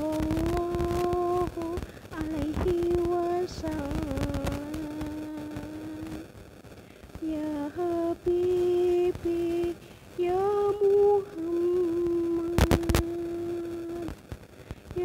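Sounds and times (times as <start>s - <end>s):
woman singing unaccompanied chant: 0.0s - 6.3s, 7.2s - 14.2s
sharp clicks: 12.4s - 15.0s.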